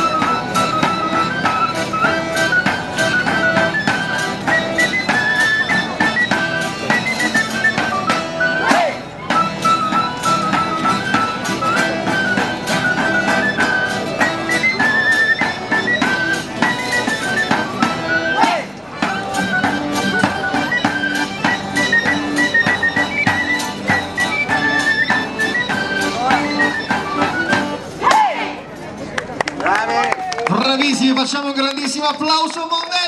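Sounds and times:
accordion melody: 0.0s - 28.7s
strummed guitars: 0.0s - 29.0s.

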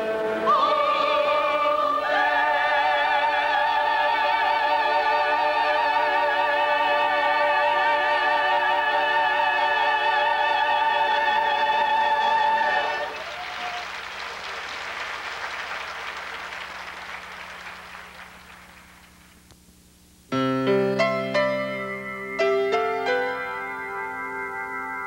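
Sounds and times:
choir and orchestra chord: 0.0s - 13.2s
audience applause: 13.0s - 19.4s
piano playing: 20.3s - 25.0s.

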